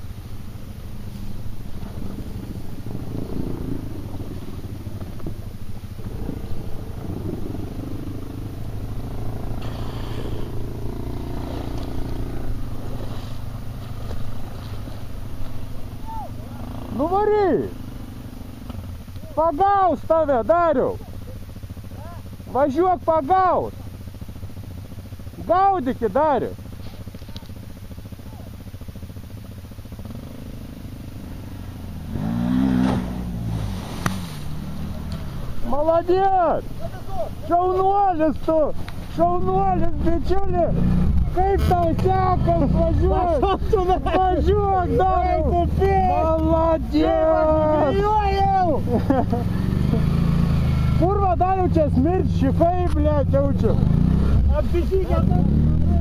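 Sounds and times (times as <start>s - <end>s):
quad engine running under load: 0.0s - 56.0s
water splashing: 32.6s - 35.3s.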